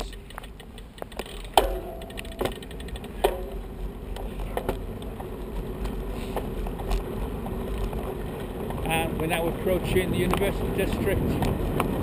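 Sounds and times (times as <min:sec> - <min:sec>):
bicycle tyre rumble: 0:00.0 - 0:12.0
sharp knocks: 0:01.5 - 0:03.7.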